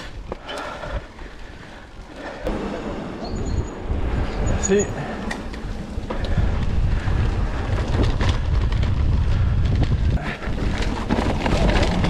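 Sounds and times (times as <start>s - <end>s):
wind rumbling on microphone: 0.0s - 12.0s
mountain bike rattling over trail: 4.5s - 12.0s.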